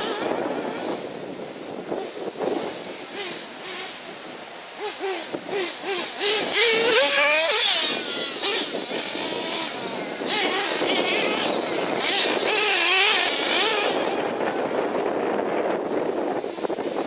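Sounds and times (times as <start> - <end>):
remote control car motors whining: 0.0 - 17.0
tyres hissing on loose dirt: 1.9 - 15.0.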